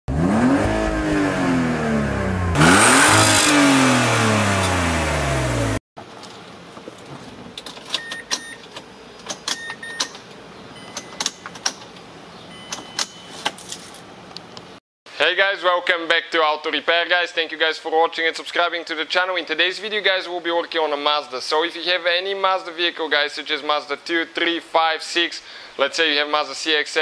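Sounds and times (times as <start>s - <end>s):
car engine revving: 0.1s - 5.8s
ignition clicks: 7.6s - 13.6s
short electronic beeps: 9.6s - 10.1s, 10.8s - 11.4s, 12.5s - 13.4s.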